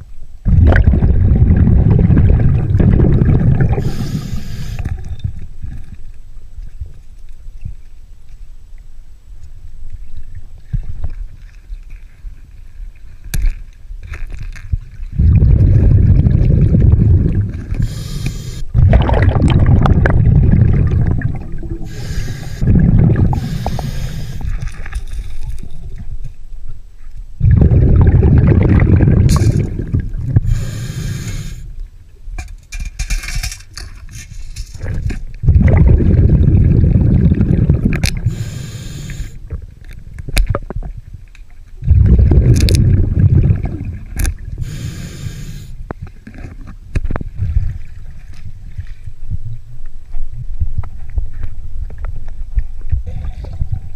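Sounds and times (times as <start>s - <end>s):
exhaled bubbles rushing: 0.4s - 5.0s, 15.1s - 24.9s, 27.4s - 30.6s, 35.4s - 38.4s, 41.8s - 44.6s
regulator inhale hiss: 3.8s - 5.0s, 17.8s - 18.7s, 21.8s - 22.7s, 23.3s - 24.7s, 30.5s - 31.7s, 38.2s - 39.4s, 44.6s - 45.8s.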